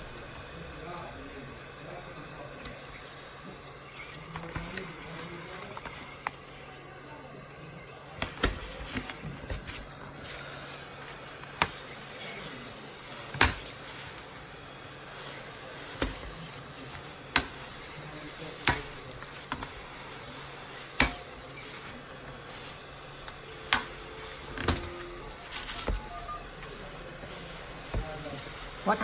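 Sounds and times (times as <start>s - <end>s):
heat gun blowing: 7.4s - 26.0s.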